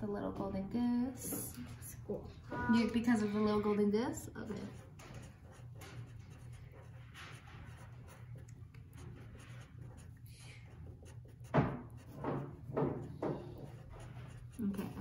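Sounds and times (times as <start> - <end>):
marker scratching on paper: 4.4 - 15.0.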